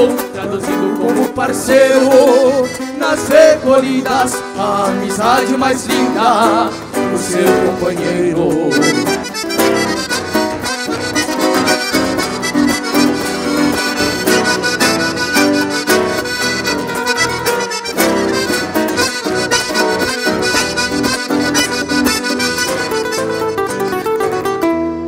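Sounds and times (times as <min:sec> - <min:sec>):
nylon-string guitar: 0:00.0 - 0:25.0
piano accordion: 0:01.9 - 0:04.8, 0:06.0 - 0:24.6.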